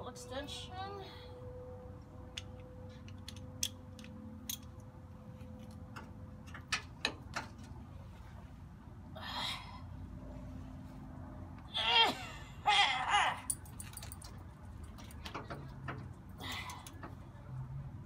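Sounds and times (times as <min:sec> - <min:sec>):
metallic clicks of ratchet tools: 0:02.4 - 0:04.9.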